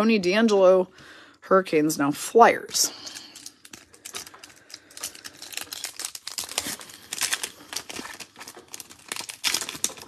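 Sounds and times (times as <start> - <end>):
foil wrapper tearing and crinkling: 3.0 - 10.0.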